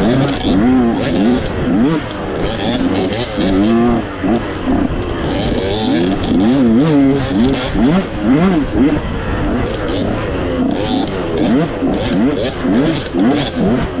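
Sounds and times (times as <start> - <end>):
dirt bike engine revving: 0.0 - 14.0.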